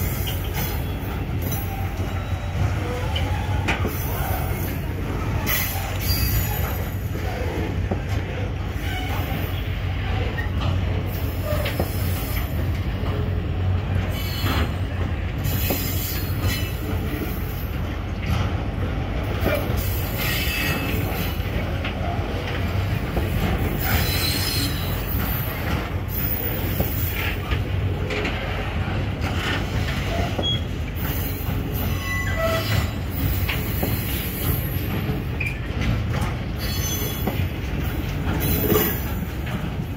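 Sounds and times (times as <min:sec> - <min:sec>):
train wheels rumbling on rail: 0:00.0 - 0:39.9
high-pitched wheel squeals: 0:05.5 - 0:07.1, 0:23.8 - 0:25.3, 0:30.1 - 0:34.5, 0:36.6 - 0:37.4
wheels clicking over rail joints: 0:14.0 - 0:39.9.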